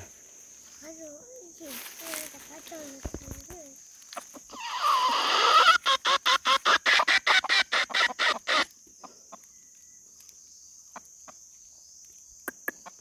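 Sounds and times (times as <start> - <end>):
rooster clucking: 4.1 - 8.7
rooster calling: 4.4 - 8.7.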